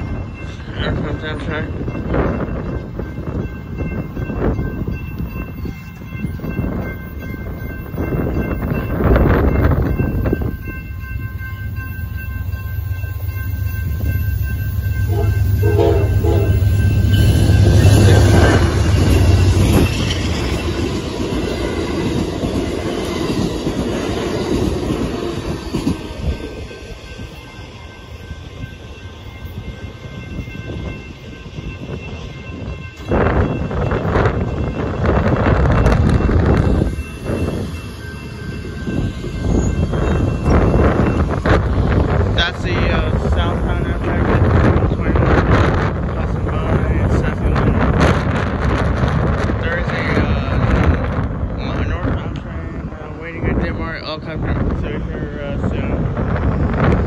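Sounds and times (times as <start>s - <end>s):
crossing warning bell ringing: 0.0s - 57.0s
passenger train passing: 0.0s - 57.0s
train wheels clattering on rails: 0.0s - 57.0s.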